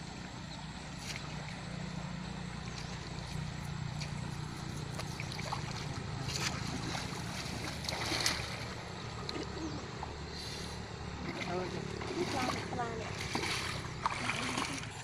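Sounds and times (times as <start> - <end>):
steady low hum: 0.0 - 15.0
water splashing and dripping: 2.6 - 10.2, 11.2 - 15.0.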